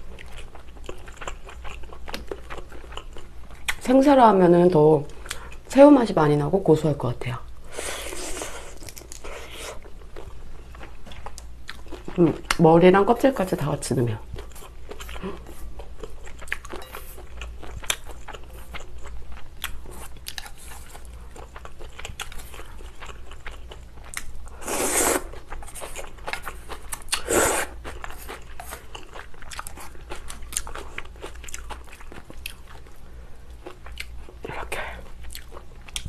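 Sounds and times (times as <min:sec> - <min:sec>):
chewing with small clicks: 0:00.1 - 0:03.8, 0:15.8 - 0:24.4, 0:25.5 - 0:27.2, 0:27.8 - 0:36.0
slurping noodles: 0:24.6 - 0:25.4, 0:27.2 - 0:27.8.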